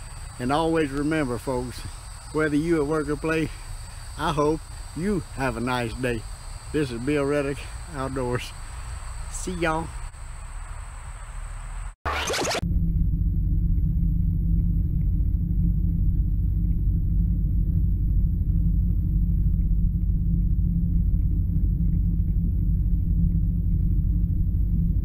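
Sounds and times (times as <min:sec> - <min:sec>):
engine running steadily: 0:12.6 - 0:25.0.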